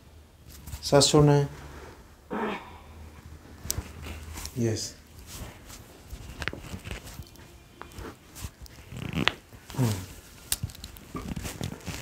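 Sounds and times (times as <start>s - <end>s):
spine joints cracking: 6.2s - 12.0s.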